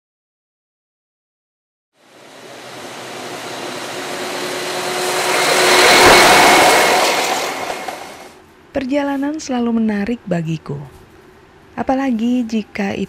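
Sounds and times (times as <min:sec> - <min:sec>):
motor vehicle passing by: 0:02.0 - 0:08.4.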